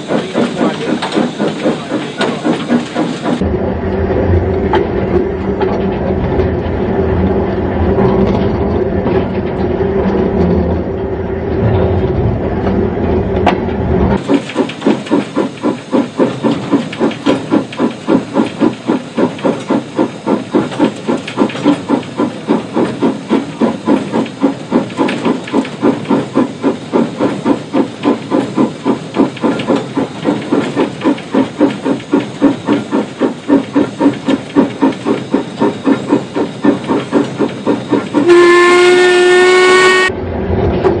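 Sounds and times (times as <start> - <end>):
steam hiss: 0.0 - 3.4, 14.2 - 40.1
steam locomotive chuffing: 0.0 - 41.0
train rumbling: 0.0 - 41.0.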